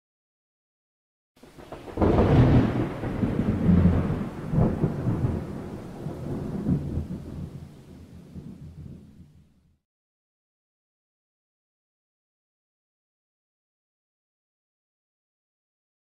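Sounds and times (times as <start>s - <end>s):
thunderclap rumbling: 1.4s - 9.5s.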